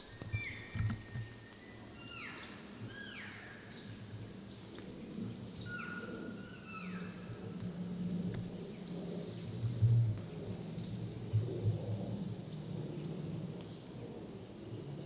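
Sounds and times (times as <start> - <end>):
birds whistling: 0.0 - 3.6.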